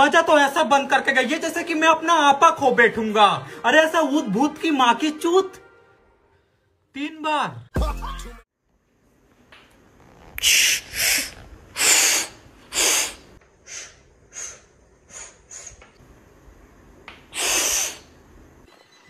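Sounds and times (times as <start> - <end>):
sharp breathy hissing bursts: 10.4 - 16.0, 17.2 - 18.2.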